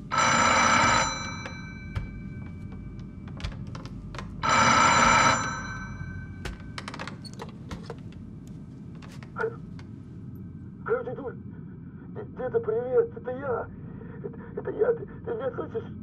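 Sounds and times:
telephone bells ringing: 0.1 - 3.1, 4.4 - 7.0.

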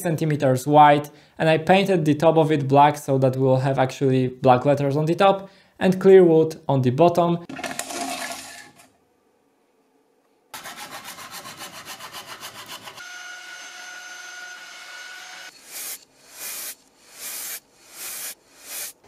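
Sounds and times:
saw cutting wood: 10.6 - 19.0
power tool whining: 13.0 - 19.0
spray can hissing: 15.5 - 19.0.

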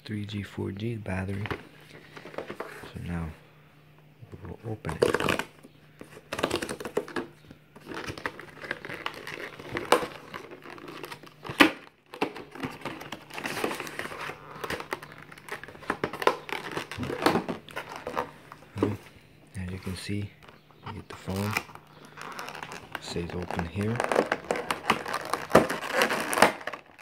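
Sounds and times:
plastic crinkling: 4.9 - 19.1, 21.2 - 27.0.

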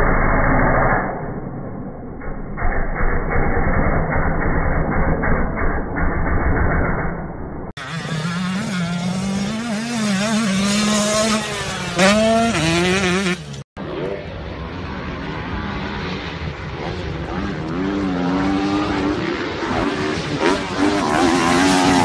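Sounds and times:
distant dirt bike revving: 0.0 - 22.0
dirt bike engine revving: 7.8 - 22.0.

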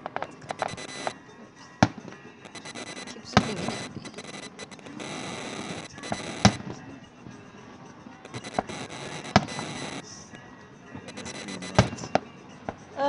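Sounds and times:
firework crackling: 0.0 - 6.9.

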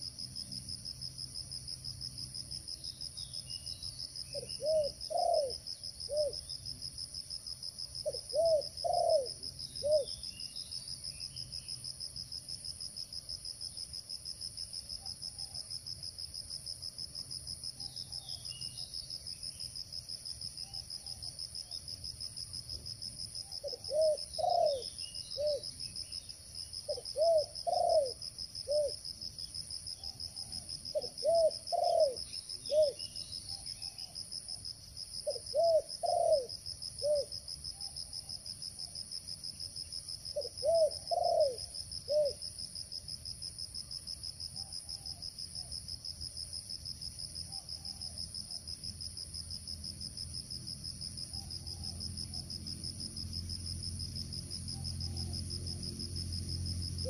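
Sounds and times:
crickets droning: 0.0 - 57.0
dove cooing: 4.3 - 6.4, 8.0 - 10.1, 23.6 - 25.7, 26.9 - 29.0, 30.4 - 33.0, 35.2 - 37.3, 40.4 - 42.4.

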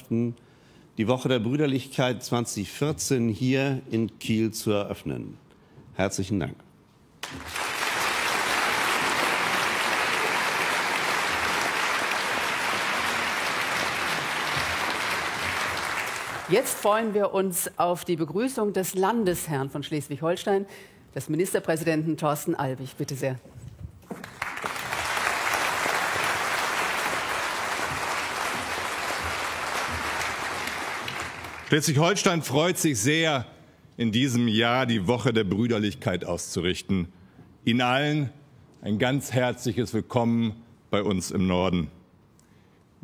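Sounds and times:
audience applauding: 7.2 - 17.1, 24.1 - 32.2.

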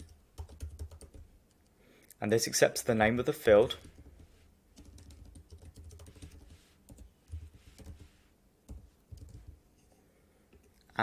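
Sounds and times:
computer keyboard typing: 0.0 - 1.3, 3.7 - 9.6.

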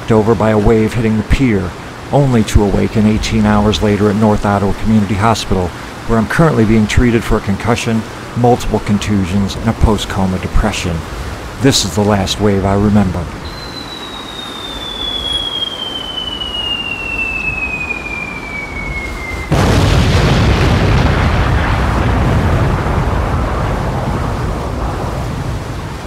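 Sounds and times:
storm waves breaking on a pier: 0.0 - 26.0
falling whistle: 13.4 - 19.6
loud crash: 18.6 - 23.0.

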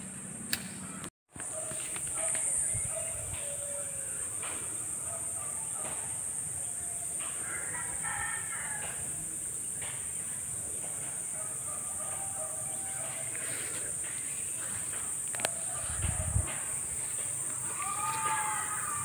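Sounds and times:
sharp click: 0.5 - 0.8
rooster crowing: 3.3 - 4.4, 7.4 - 9.2, 11.4 - 13.5, 15.3 - 19.0.

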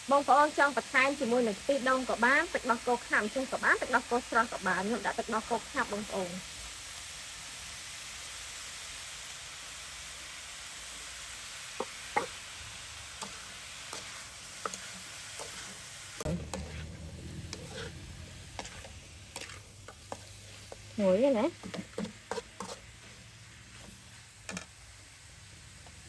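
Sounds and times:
beef sizzling in a wok: 0.0 - 26.0
metal ladle scraping a pan: 13.1 - 24.8.

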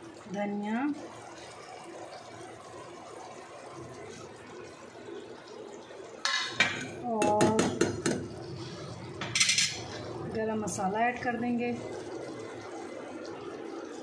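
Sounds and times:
curry simmering in a pot: 0.0 - 14.0
ladle scraping a pot: 9.2 - 10.0.

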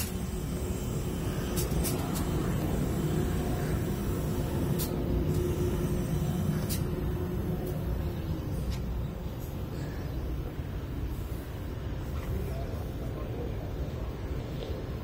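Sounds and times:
low engine rumble: 0.0 - 15.0.

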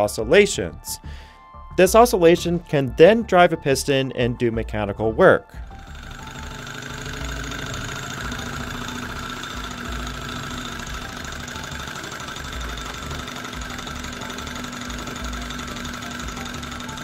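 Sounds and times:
engine mechanical chatter: 5.6 - 17.0.

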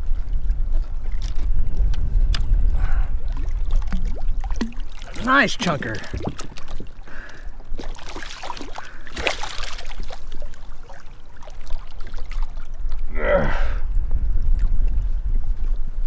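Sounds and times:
wind rumbling on microphone: 0.0 - 8.1, 8.8 - 16.0
water splashing against kayak: 0.0 - 13.1
gasp-like vocal sound: 13.1 - 13.9.

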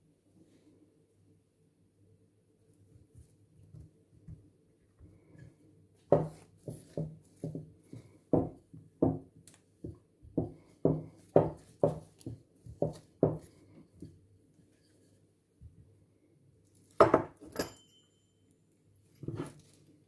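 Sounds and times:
rolling pin rolling over dough: 5.2 - 15.2.

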